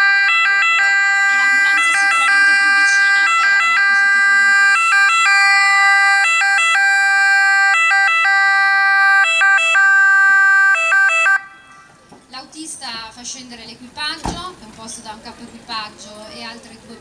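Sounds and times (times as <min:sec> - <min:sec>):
ambulance two-tone siren: 0:00.0 - 0:12.0.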